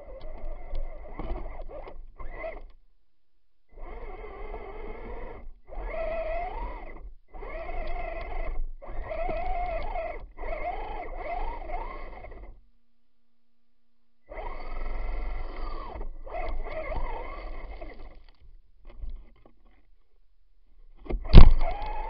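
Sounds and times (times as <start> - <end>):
electric motor whining: 0.0 - 2.7, 3.7 - 12.6, 14.3 - 19.1, 21.0 - 22.0.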